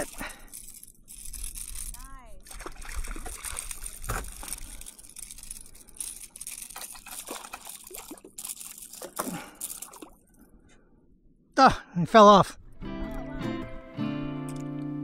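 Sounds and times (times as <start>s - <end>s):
fish splashing at water surface: 2.4s - 10.2s.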